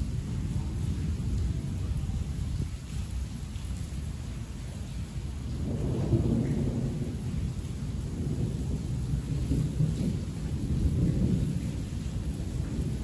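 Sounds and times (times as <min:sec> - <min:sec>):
heavy rain: 0:00.0 - 0:13.0
rolling thunder: 0:05.1 - 0:13.0.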